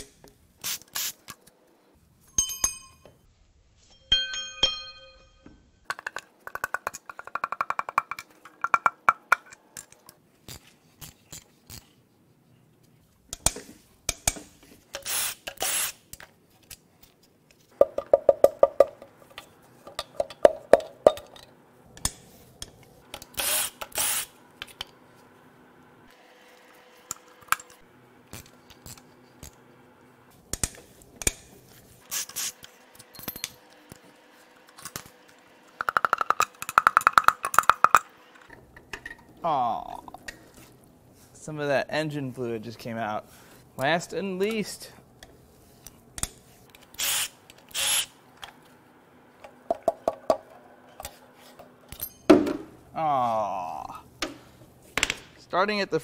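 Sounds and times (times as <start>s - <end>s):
metal clinks and knocks: 2.2s - 3.2s, 51.9s - 52.6s.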